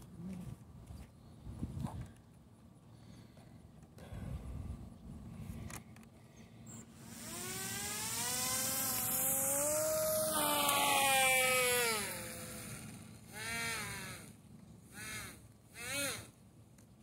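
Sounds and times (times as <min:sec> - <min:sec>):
electric motor whine: 0:06.7 - 0:16.4.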